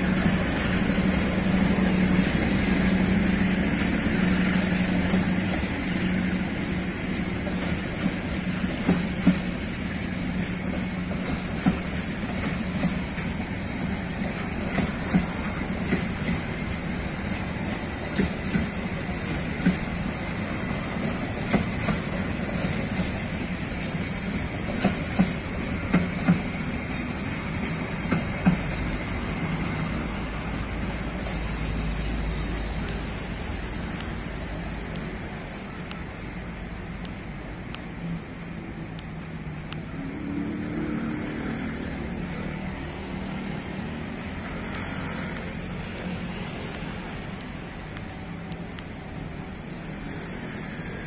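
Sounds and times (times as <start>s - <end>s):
wheels clacking over rail joints: 0.0s - 40.1s
train wheels rumbling on rail: 0.0s - 51.0s.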